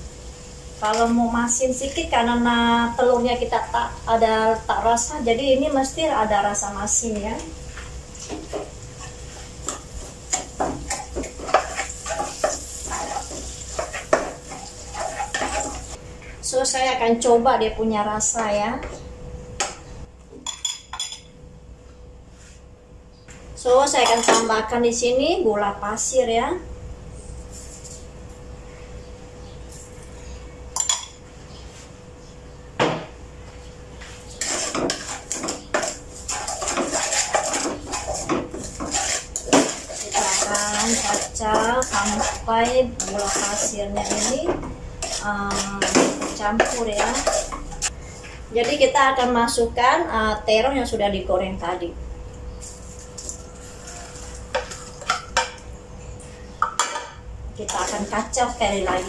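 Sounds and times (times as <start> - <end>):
light sizzle: 0.0 - 16.5, 34.0 - 48.2
spatula scraping a wok: 7.7 - 16.0, 34.0 - 48.8, 52.6 - 55.2, 57.6 - 59.0.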